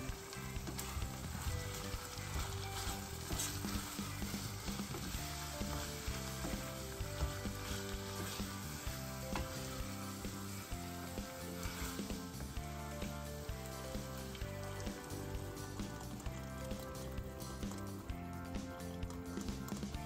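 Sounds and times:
food sizzling in a pan: 0:00.0 - 0:18.0
soft background music: 0:00.0 - 0:20.0
stirring clicks: 0:00.0 - 0:20.0.

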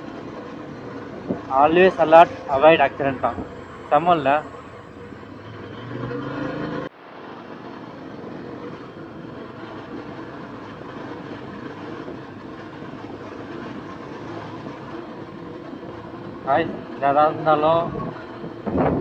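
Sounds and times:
motorcycle engine and wind drone: 0:00.0 - 0:19.0
high-pitched engine note: 0:01.2 - 0:06.9.

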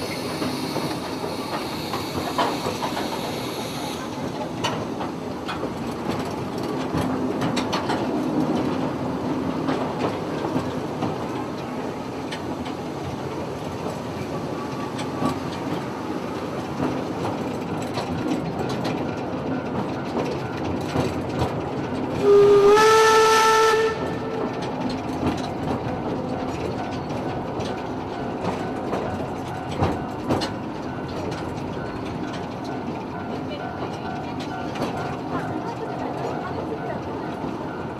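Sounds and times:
steam locomotive whistle: 0:00.0 - 0:04.2, 0:22.2 - 0:24.5
rail joint clicks: 0:00.0 - 0:37.9
train running noise: 0:00.0 - 0:37.9.

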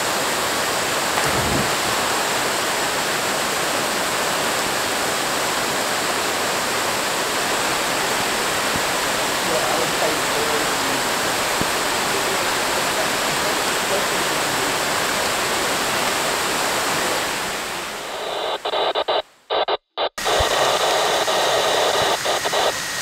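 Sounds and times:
heavy rain falling: 0:00.0 - 0:18.5
stuttering digital glitch hiss: 0:18.0 - 0:23.0.

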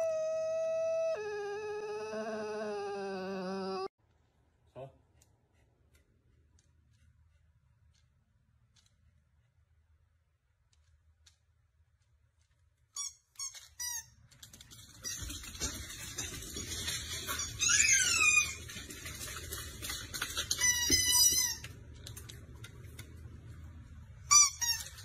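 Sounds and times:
dogs yipping and whining: 0:00.0 - 0:03.9, 0:17.1 - 0:18.8.

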